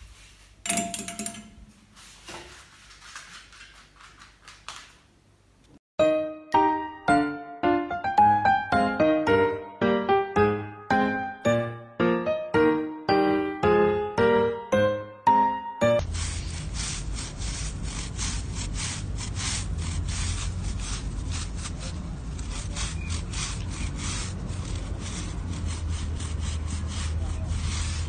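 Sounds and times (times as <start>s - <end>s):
push broom scraping scaly skin: 16.0s - 28.0s.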